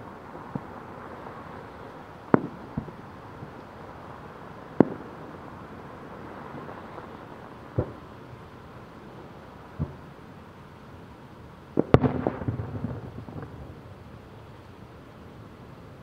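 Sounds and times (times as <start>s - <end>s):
background hiss: 0.0s - 16.0s
distant fireworks bangs: 0.4s - 8.3s, 9.7s - 10.2s, 11.7s - 14.5s.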